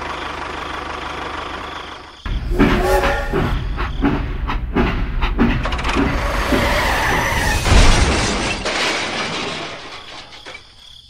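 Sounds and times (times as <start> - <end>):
train rumbling on rails: 2.1 - 8.1
loud crash and shattering: 6.2 - 10.9.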